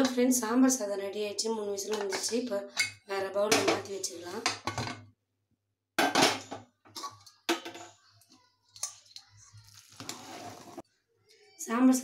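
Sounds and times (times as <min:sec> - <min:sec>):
metal ladle scraping pot: 0:09.7 - 0:10.8.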